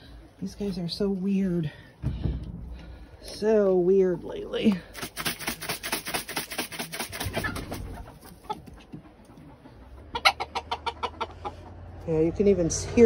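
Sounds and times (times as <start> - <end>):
hens clucking and squawking: 5.0 - 12.4.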